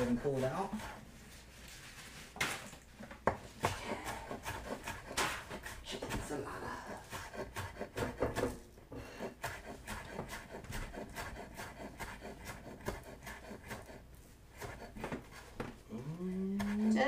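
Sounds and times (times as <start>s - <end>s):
knife chopping on wooden board: 3.2s - 6.4s, 7.0s - 8.6s, 9.2s - 14.0s, 14.6s - 15.8s, 16.6s - 16.9s.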